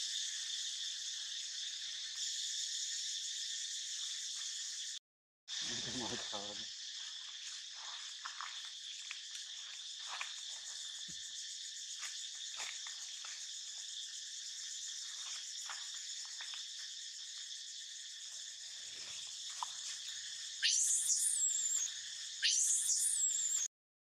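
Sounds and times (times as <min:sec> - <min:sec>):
insect chorus: 0:00.0 - 0:23.7
baby monkey screaming: 0:20.6 - 0:23.6.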